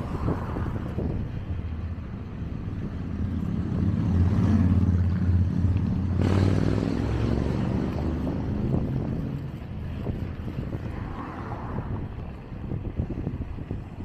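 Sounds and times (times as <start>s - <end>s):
wind noise on microphone: 0.0s - 14.0s
motorcycle engine passing: 3.1s - 9.2s.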